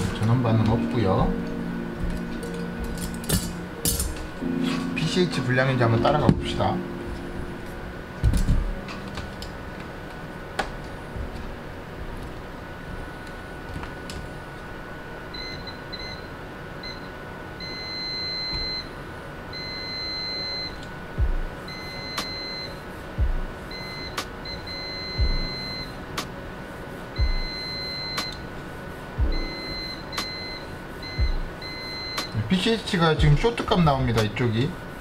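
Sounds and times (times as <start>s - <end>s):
multimeter continuity beep: 15.3s - 18.9s, 19.5s - 26.0s, 27.2s - 28.5s, 29.2s - 33.4s.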